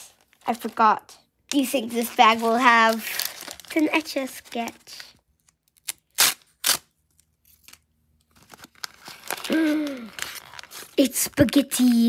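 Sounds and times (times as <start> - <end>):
foil crinkling: 1.9 - 5.1, 7.6 - 12.0
foil pouch tearing: 5.8 - 6.9, 8.5 - 11.0.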